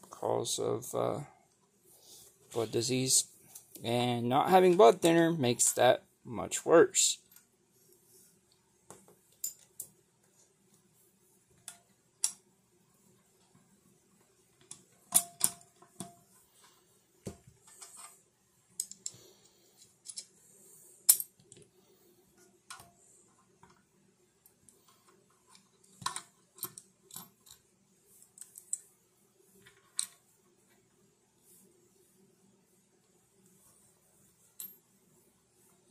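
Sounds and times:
metal hardware clinking: 14.7 - 16.2.

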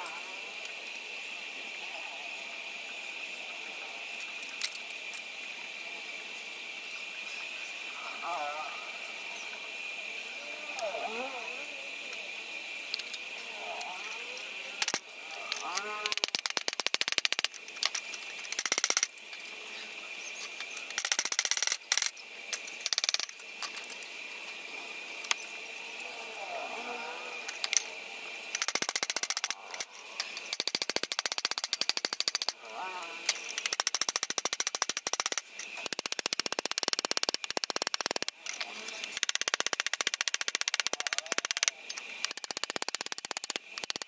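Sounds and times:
rapid metallic clicking and clatter: 12.9 - 19.6, 20.4 - 24.6, 27.5 - 32.6, 33.2 - 44.0.

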